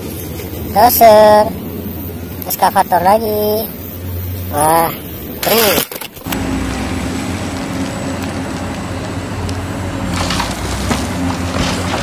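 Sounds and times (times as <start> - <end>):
excavator diesel engines: 0.0 - 12.0
rock and soil crunching: 5.4 - 12.0.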